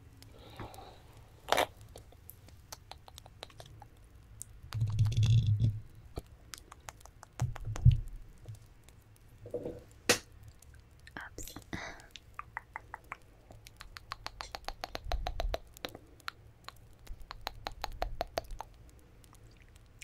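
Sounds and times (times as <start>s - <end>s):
fingernails tapping on microphone: 6.7s - 8.1s, 13.8s - 15.8s.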